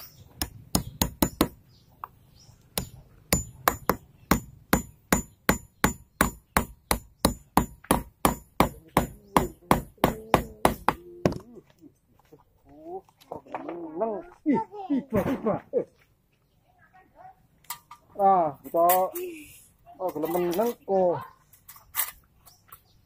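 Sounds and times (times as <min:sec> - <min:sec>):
hand hammer blows: 0:02.8 - 0:11.4.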